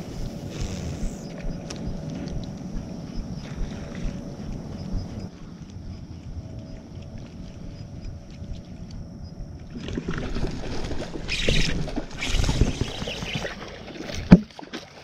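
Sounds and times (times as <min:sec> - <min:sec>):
fish thrashing and water splashing: 0:09.7 - 0:15.0.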